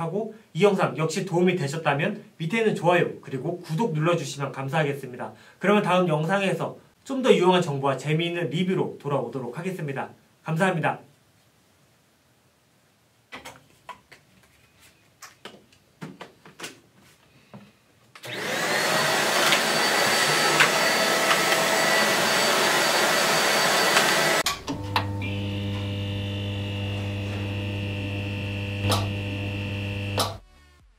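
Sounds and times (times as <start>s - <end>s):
vacuum cleaner running: 18.2s - 30.4s.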